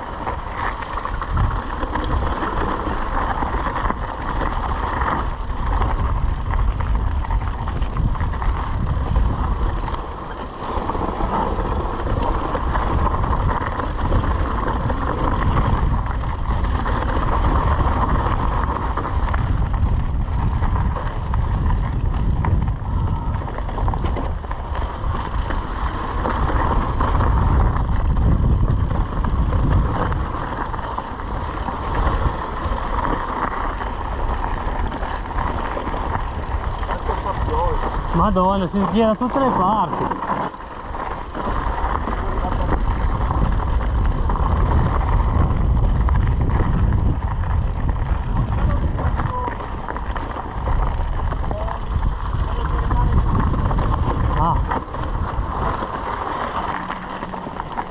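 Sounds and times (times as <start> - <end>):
bike tyres on rocky dirt trail: 0.0 - 57.9
wind rumbling on microphone: 0.0 - 57.9.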